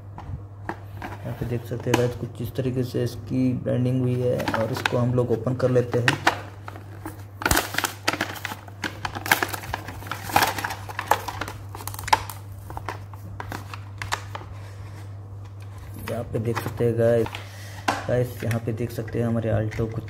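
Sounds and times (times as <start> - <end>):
plastic packaging crinkling: 4.1 - 18.6.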